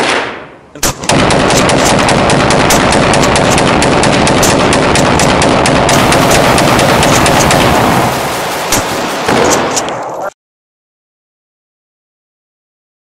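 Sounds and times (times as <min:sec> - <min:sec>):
rapid gunfire: 0:00.0 - 0:09.8.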